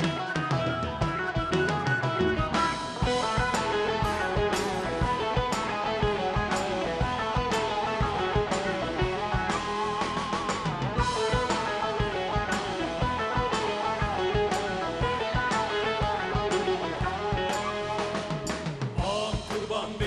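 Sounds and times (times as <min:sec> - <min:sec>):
folk-rock band playing: 0:00.0 - 0:20.0.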